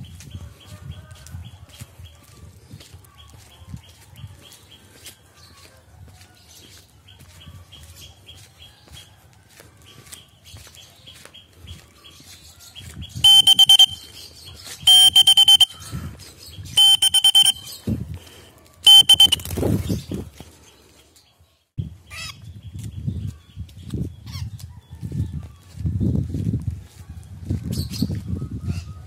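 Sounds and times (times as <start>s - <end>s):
bird chirping shrilly: 13.2s - 15.9s, 16.7s - 17.9s, 18.9s - 19.6s.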